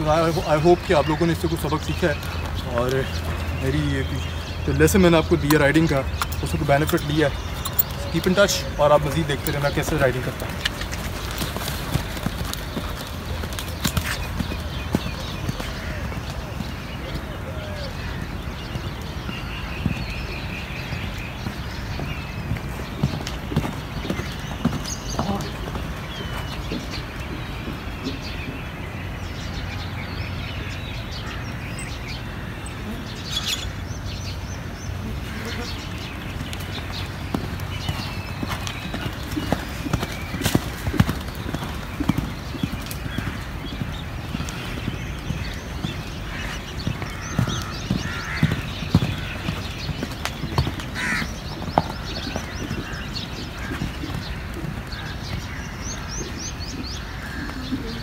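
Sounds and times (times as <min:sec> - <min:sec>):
small birds chirping: 0:00.0 - 0:58.0
horse hoofbeats on sand: 0:05.0 - 0:29.2, 0:35.3 - 0:58.0
crow cawing: 0:46.3 - 0:49.4, 0:51.0 - 0:51.3.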